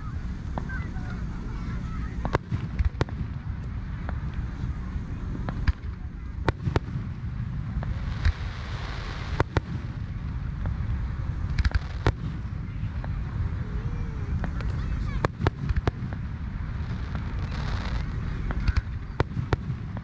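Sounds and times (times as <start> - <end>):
fireworks hissing: 0.0 - 20.0
low rumble: 0.0 - 20.0.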